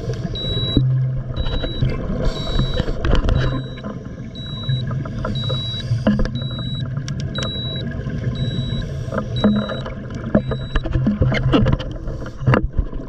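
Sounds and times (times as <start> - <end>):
diver's bubbles gurgling underwater: 0.0 - 13.0
high electronic beep: 1.4 - 2.8, 3.4 - 9.8, 10.4 - 10.8.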